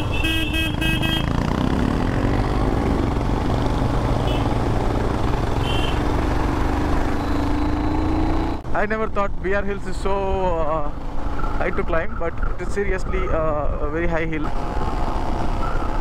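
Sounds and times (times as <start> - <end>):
vehicle horn tooting: 0.0 - 1.4, 4.2 - 4.6, 5.6 - 6.0
motorcycle engine running: 0.0 - 8.6.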